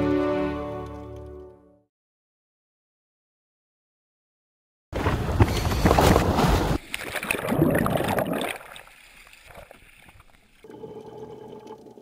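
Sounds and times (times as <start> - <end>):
water sloshing and splashing: 6.0 - 10.7.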